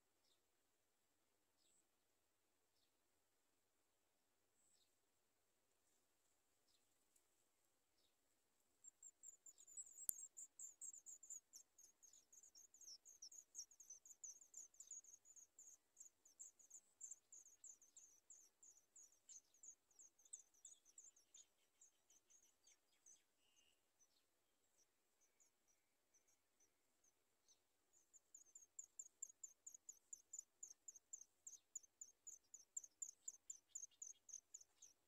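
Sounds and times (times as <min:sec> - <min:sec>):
nestlings chirping: 0:09.2 - 0:24.1, 0:28.0 - 0:35.0.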